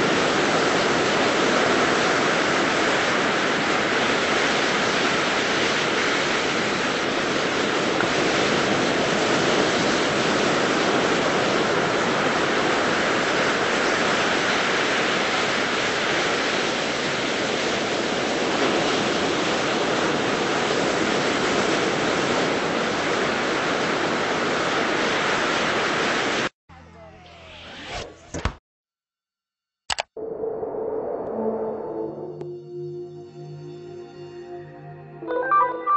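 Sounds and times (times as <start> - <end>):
ocean waves washing onto beach: 0.0 - 26.5.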